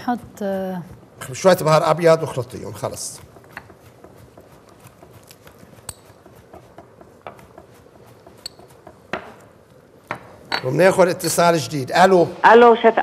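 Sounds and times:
knife chopping on wooden board: 0.2 - 10.4.

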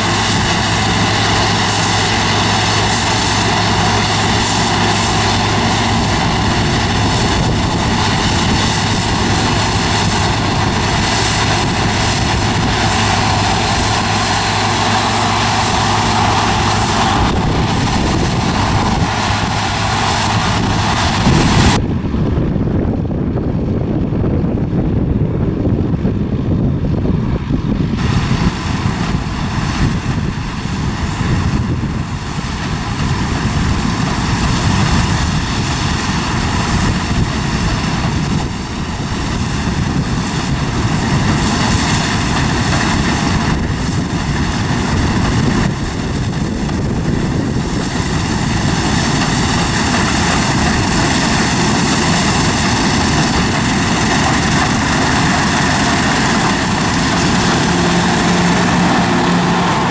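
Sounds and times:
combine harvester running: 0.0 - 59.9.

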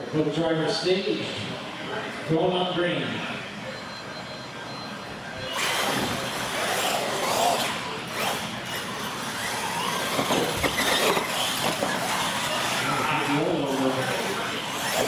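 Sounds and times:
toy truck motors whining: 5.4 - 15.0.

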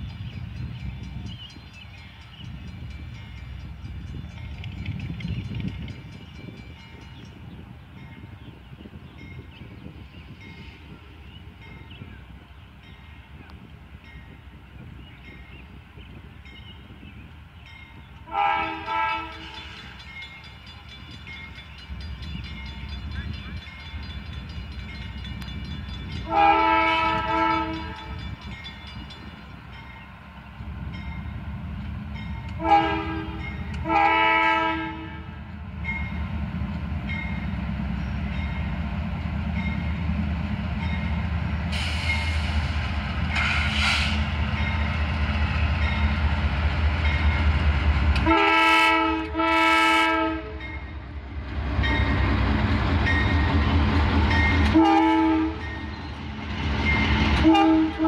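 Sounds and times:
locomotive engine rumble: 0.0 - 58.0
locomotive horn blasts: 18.2 - 19.7, 26.2 - 28.2, 32.5 - 35.4, 48.2 - 50.7, 54.6 - 55.7, 57.4 - 58.0.

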